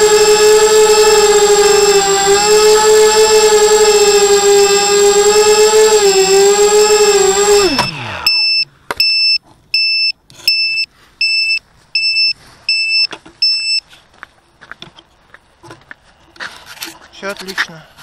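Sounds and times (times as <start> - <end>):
drone motors humming: 0.0 - 8.6.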